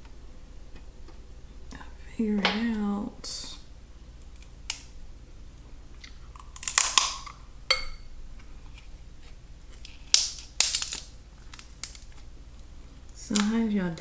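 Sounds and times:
crab shells cracking: 4.2 - 5.0, 6.0 - 7.4, 8.7 - 13.6.

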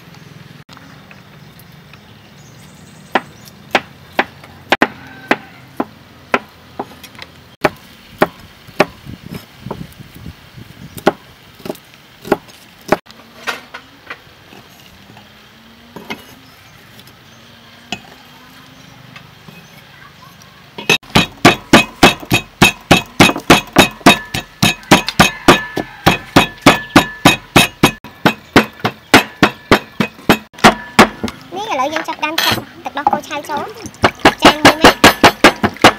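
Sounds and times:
wooden pestle pounding in mortar: 3.1 - 6.9, 7.6 - 9.0, 20.9 - 35.9.

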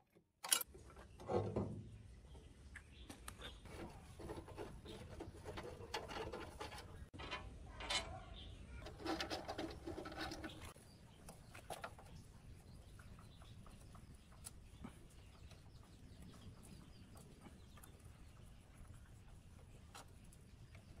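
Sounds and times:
metal parts clicking and clinking: 0.4 - 0.7.

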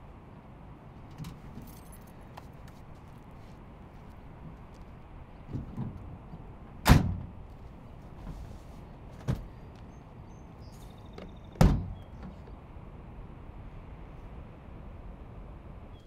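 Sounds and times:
truck doors slamming: 5.4 - 7.5, 11.6 - 12.4.

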